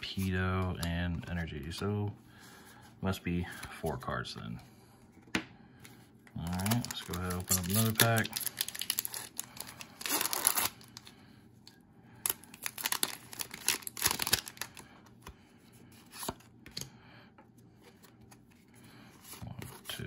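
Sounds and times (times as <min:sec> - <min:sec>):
cards rustling: 0:05.8 - 0:11.1, 0:12.2 - 0:16.9, 0:17.7 - 0:20.0
foil wrapper tearing and crinkling: 0:06.4 - 0:11.1, 0:12.2 - 0:14.8.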